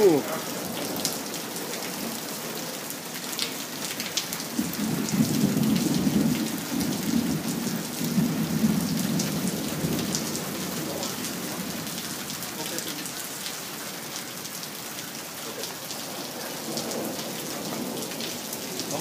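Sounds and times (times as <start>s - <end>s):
heavy rain hissing: 0.0s - 19.0s
raindrops ticking: 0.0s - 19.0s
thunder rumbling: 4.5s - 12.0s.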